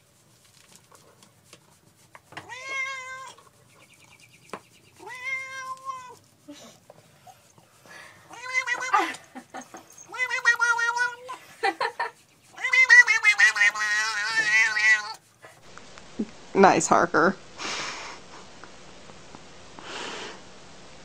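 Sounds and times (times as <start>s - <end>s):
cat meowing: 2.4s - 3.4s, 5.0s - 6.2s, 8.3s - 9.2s, 9.9s - 11.4s, 12.6s - 15.2s.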